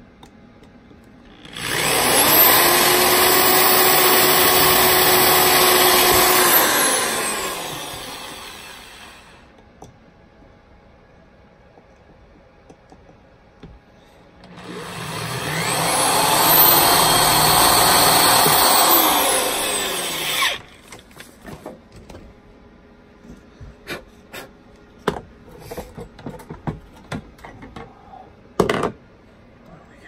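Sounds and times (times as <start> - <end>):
electric drill running: 1.3 - 9.4, 14.5 - 20.9
clicks and knocks of handling: 25.0 - 28.0.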